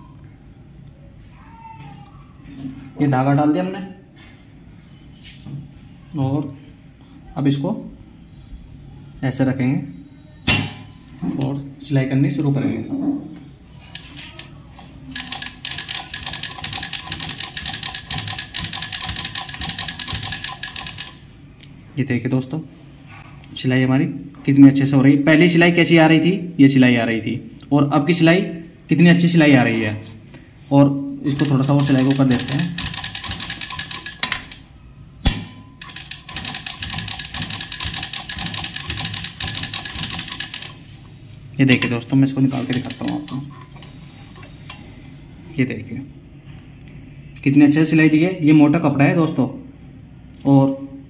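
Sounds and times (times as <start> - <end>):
sewing machine clattering: 15.1 - 21.2, 31.3 - 34.6, 35.8 - 40.8, 41.8 - 43.5.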